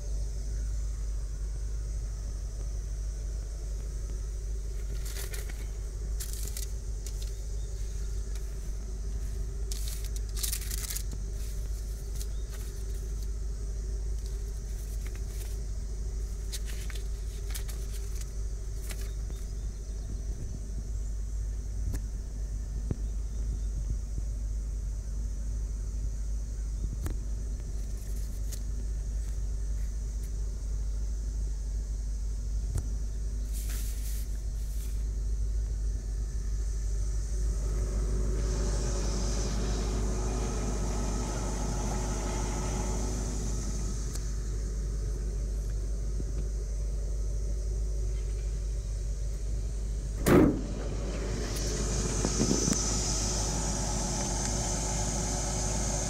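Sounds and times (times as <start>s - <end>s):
low rumble: 37.0s - 45.9s, 49.1s - 56.0s
car trunk lid slamming: 50.1s - 54.4s.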